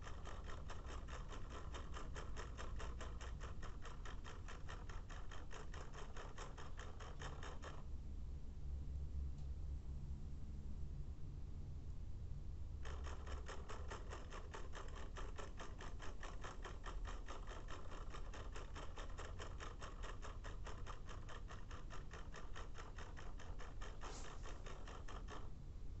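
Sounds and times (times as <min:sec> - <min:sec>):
clock motor ticking rapidly: 0:00.0 - 0:07.8, 0:12.8 - 0:25.5.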